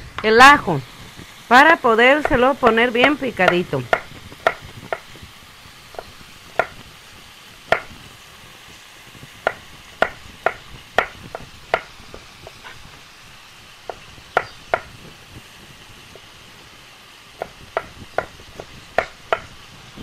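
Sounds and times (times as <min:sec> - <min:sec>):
knife chopping on plastic board: 0:06.0 - 0:06.8, 0:09.4 - 0:11.9.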